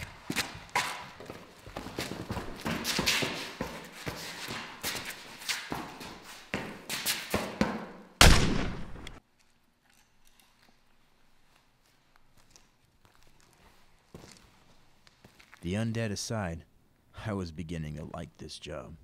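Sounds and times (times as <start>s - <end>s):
thumps and knocks of scuffle: 0.0s - 7.9s
loud bang: 8.2s - 9.2s.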